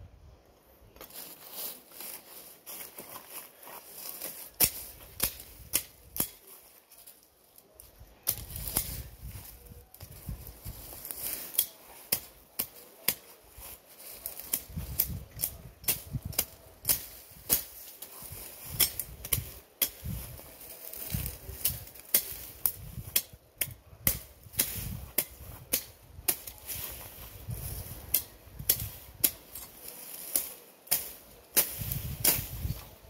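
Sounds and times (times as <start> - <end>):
low rustling of vegetation: 0.0 - 33.0
machete chopping vines: 4.0 - 6.5, 8.3 - 9.2, 10.7 - 13.4, 14.0 - 32.9.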